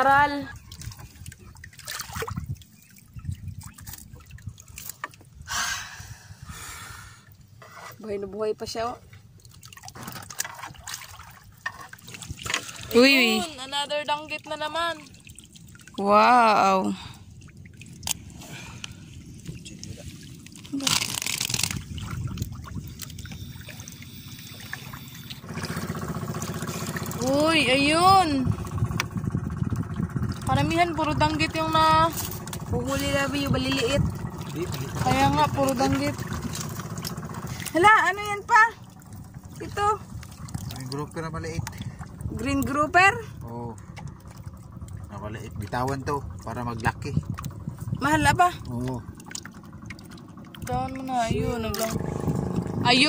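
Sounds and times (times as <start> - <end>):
water splash: 0.5 - 5.0, 9.4 - 13.7, 14.4 - 53.0
water dripping from fishing net: 0.6 - 5.3, 9.2 - 13.4, 14.9 - 19.6, 40.2 - 45.2, 48.4 - 52.7
motor engine running: 20.6 - 53.0.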